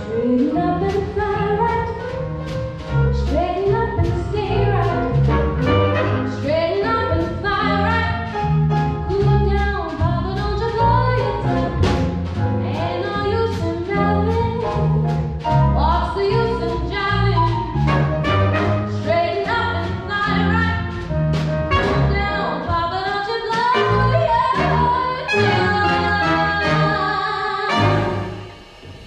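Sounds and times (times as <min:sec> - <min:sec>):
woman singing: 0:00.0 - 0:02.1, 0:03.2 - 0:05.2, 0:06.3 - 0:08.3, 0:09.1 - 0:12.0, 0:12.6 - 0:15.2, 0:15.8 - 0:17.7, 0:18.9 - 0:20.9, 0:21.8 - 0:28.2
jazz band playing swing: 0:00.0 - 0:28.8.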